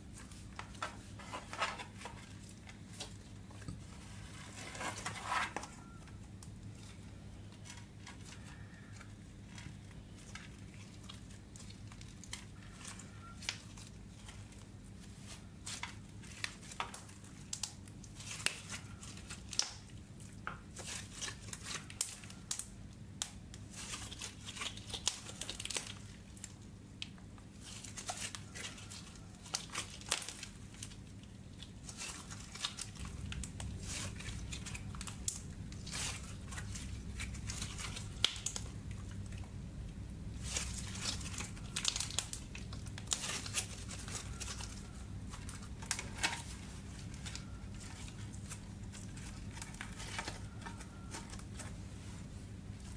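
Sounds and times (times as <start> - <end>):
slime crackling and popping: 15.6 - 20.0, 20.7 - 39.6, 40.2 - 51.7.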